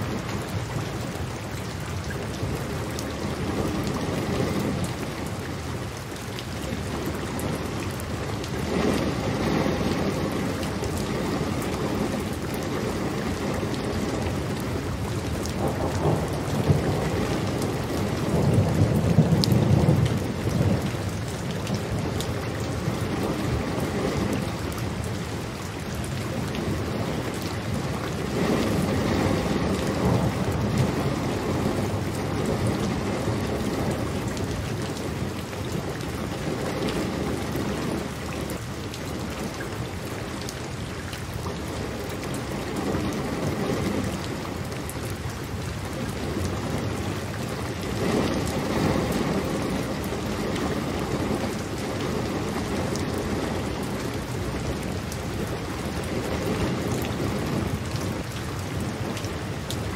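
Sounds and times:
steady rain falling: 0:00.0 - 0:59.9
rolling thunder: 0:07.0 - 0:25.4, 0:26.6 - 0:38.6.

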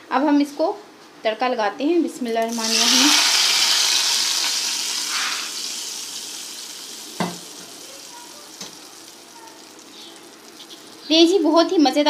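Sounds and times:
hot oil sizzling: 0:02.4 - 0:12.0.

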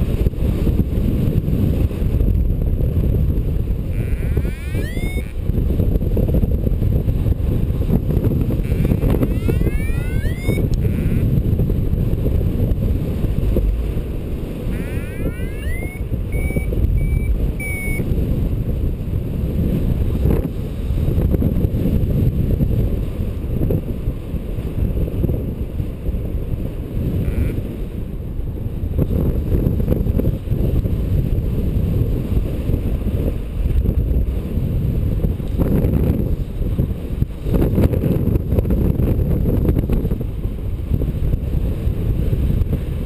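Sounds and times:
wind buffeting microphone: 0:00.0 - 0:43.0
short beeps: 0:03.9 - 0:05.4, 0:08.6 - 0:11.2, 0:14.7 - 0:18.1, 0:27.2 - 0:27.6.

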